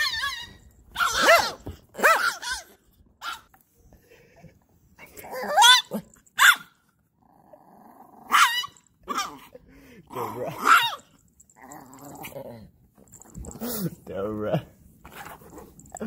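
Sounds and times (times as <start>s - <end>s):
dogs growling and barking: 0.0s - 3.5s, 5.0s - 13.9s.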